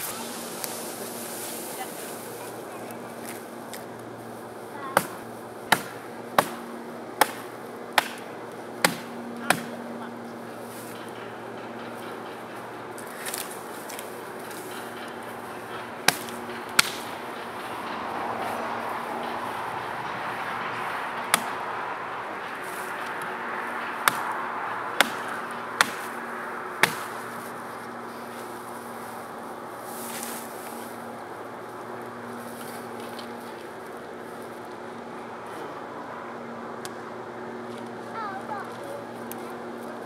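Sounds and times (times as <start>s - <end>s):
mattock chopping wood: 4.9s - 9.8s, 16.0s - 17.2s, 21.2s - 21.7s, 23.0s - 26.2s, 26.8s - 27.5s
mattock chopping into stump: 5.0s - 6.6s, 26.8s - 27.1s.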